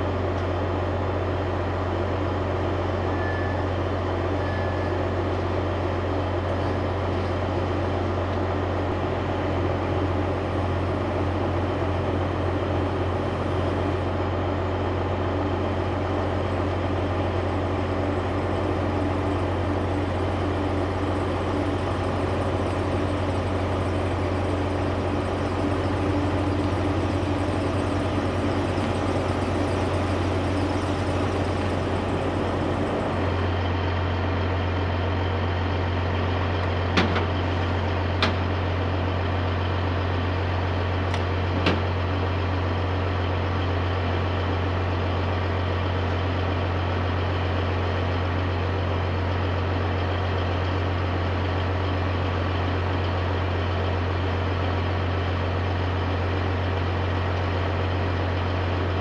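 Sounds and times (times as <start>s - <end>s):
diesel truck engine idling: 5.0s - 59.0s.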